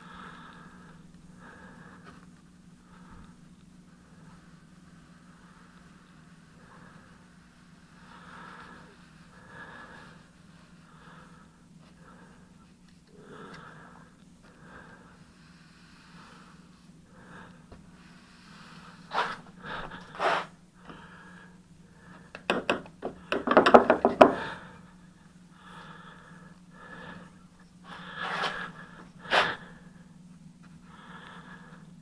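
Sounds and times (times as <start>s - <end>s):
low hum: 0.0s - 22.4s
brush scraping in paint can: 19.1s - 19.4s, 20.1s - 20.5s.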